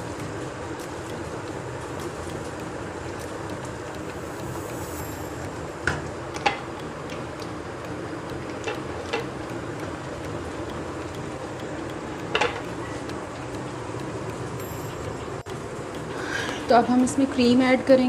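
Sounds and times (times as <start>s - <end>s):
steady background noise: 0.0s - 18.0s
spatula knocking against pan: 5.9s - 14.3s.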